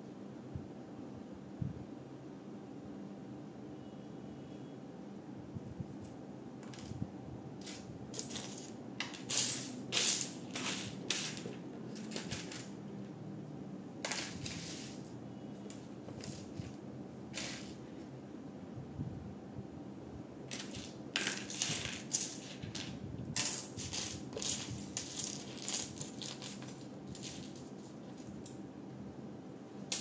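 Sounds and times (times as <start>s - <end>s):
plastic bricks clattering: 7.6s - 12.8s, 14.0s - 15.0s, 15.7s - 17.8s, 20.5s - 28.5s.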